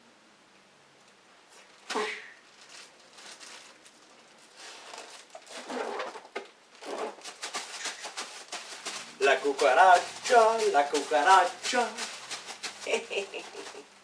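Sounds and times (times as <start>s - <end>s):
plastic bag crinkling and rustling: 1.5s - 14.0s.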